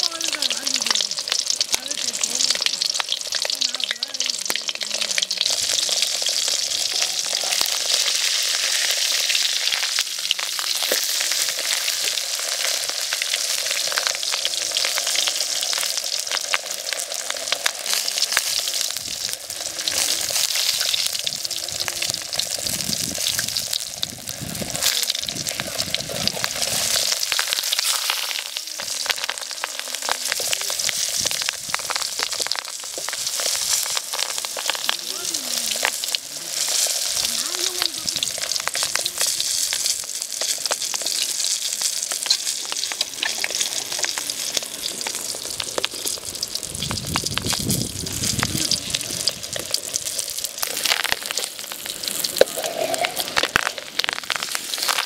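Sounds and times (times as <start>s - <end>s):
frying in hot oil sizzling: 0.0s - 55.0s.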